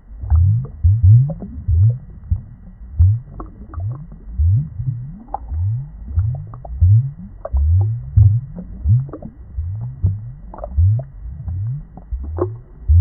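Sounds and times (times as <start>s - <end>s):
underwater bubbling and gurgling: 0.0s - 13.0s
small plops and pops: 5.1s - 13.0s.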